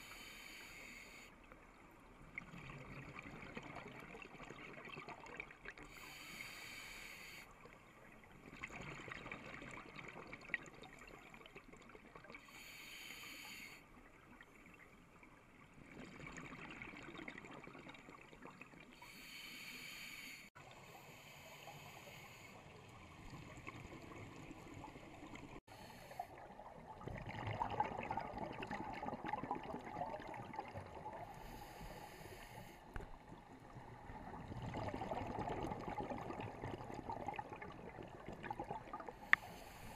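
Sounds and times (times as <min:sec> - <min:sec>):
steady underwater hiss: 0:00.0 - 0:02.1, 0:05.8 - 0:08.1, 0:12.3 - 0:14.2, 0:18.9 - 0:26.7, 0:31.1 - 0:34.4, 0:37.1 - 0:39.9.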